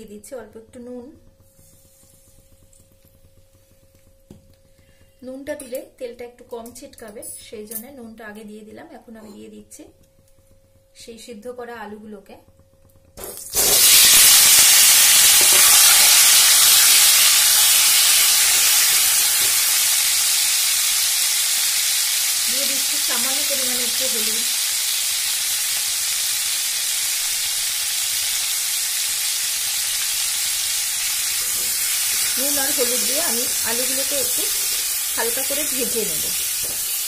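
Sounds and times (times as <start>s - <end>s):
potatoes sizzling in hot oil: 13.2s - 37.0s.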